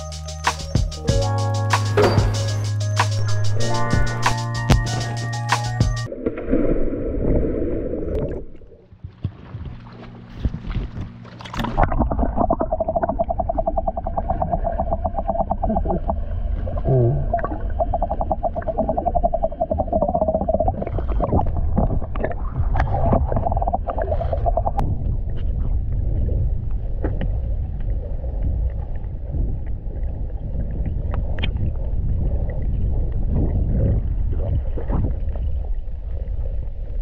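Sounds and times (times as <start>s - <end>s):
underwater rumble: 6.0s - 37.0s
clicks and bubbling: 11.4s - 24.9s.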